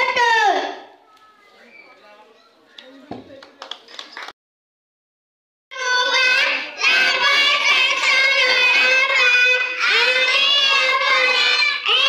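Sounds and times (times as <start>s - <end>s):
children singing in chorus: 5.8s - 12.0s.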